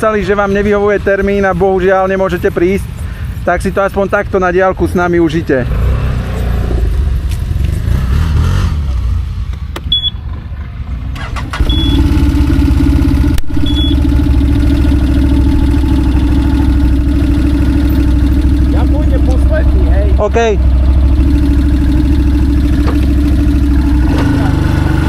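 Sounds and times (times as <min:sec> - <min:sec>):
quad bike engines idling: 0:09.5 - 0:25.0
short high beeps: 0:09.9 - 0:10.2, 0:11.6 - 0:12.1, 0:13.5 - 0:14.1.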